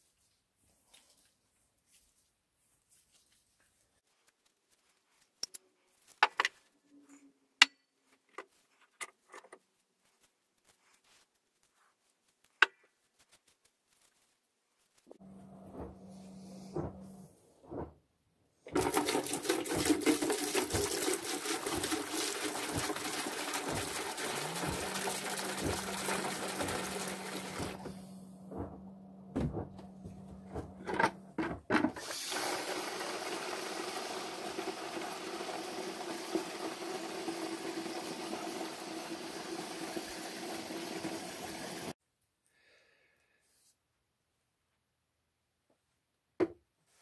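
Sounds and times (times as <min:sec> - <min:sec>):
low hum: 0:15.1 - 0:18.3, 0:24.4 - 0:31.4
faucet water stream: 0:18.7 - 0:27.9, 0:32.0 - 0:42.0
liquid pouring into plastic bucket: 0:18.7 - 0:27.9, 0:32.0 - 0:41.9.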